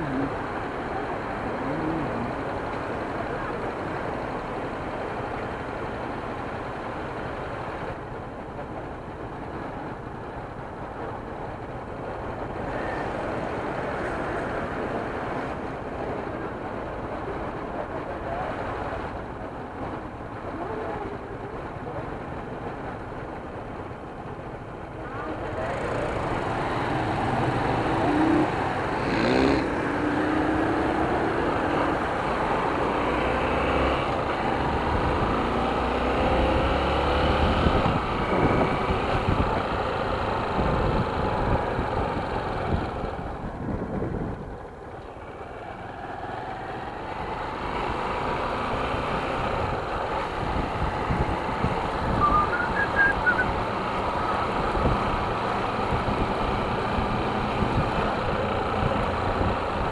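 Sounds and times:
road and wind noise: 0.0s - 59.9s
motorcycle engine: 25.3s - 43.6s.

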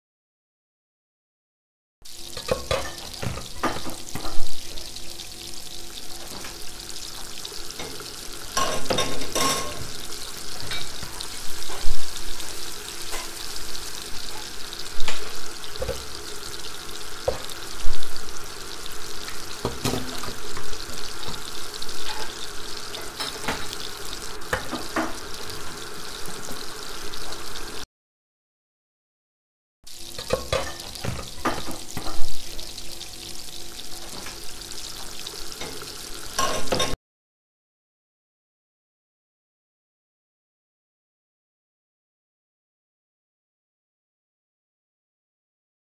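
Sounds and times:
food sizzling in frying pan: 2.0s - 27.9s, 29.9s - 37.0s.

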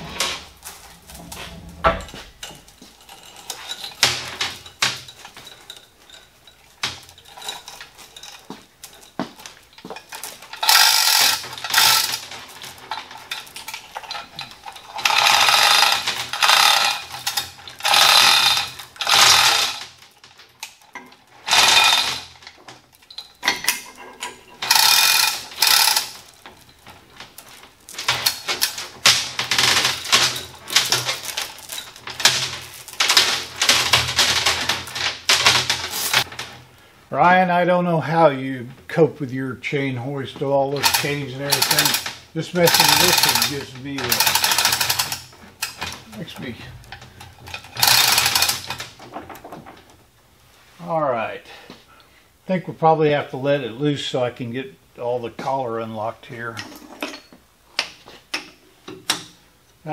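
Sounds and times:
hoist chain rattling: 0.0s - 36.6s, 40.7s - 49.9s.

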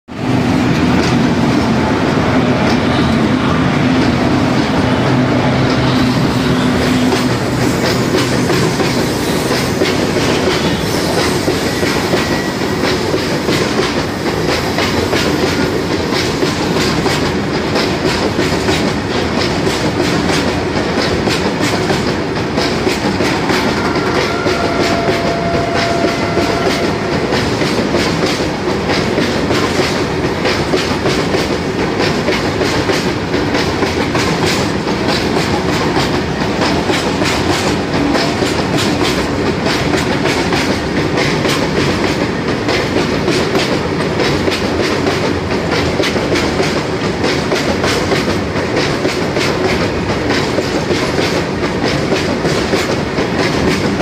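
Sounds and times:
freight train passing: 0.1s - 54.0s
wagon wheels clacking over rail joints: 3.9s - 54.0s.

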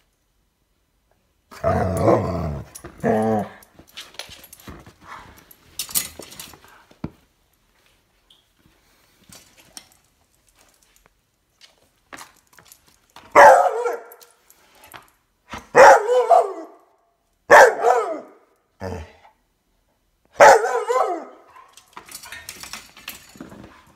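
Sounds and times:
puppy barking: 13.4s - 14.2s, 15.7s - 16.8s, 17.5s - 19.0s, 20.4s - 21.7s.

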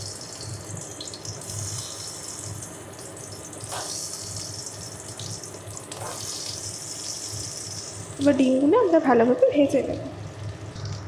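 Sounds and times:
eggs sizzling in hot oil: 0.0s - 8.8s.

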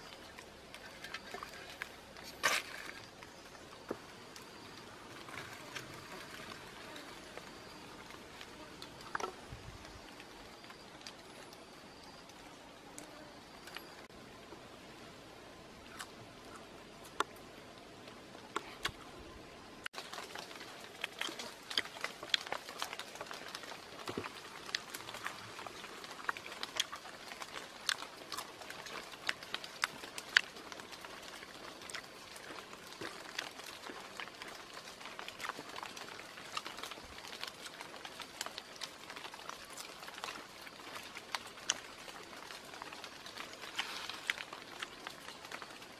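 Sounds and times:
person chewing and smacking: 20.4s - 45.7s.

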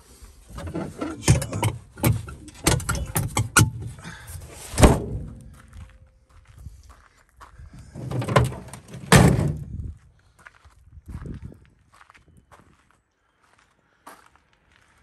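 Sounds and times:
metal lid shutting with heavy thud: 0.6s - 3.8s, 4.7s - 5.4s, 8.0s - 9.7s
metal lid clattering and rattling: 0.6s - 5.4s, 8.0s - 9.6s.

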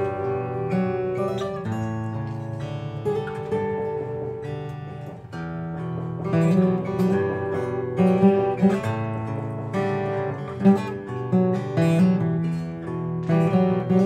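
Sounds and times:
fingerpicked acoustic guitar duet: 0.0s - 14.0s.

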